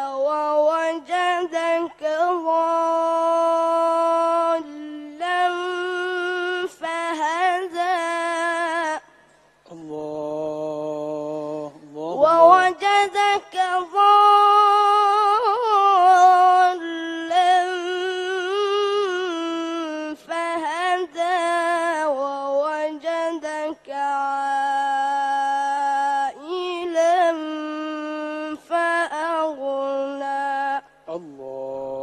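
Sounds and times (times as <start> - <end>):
boy reciting melodically: 0.0 - 32.0
short breaths: 9.1 - 9.7.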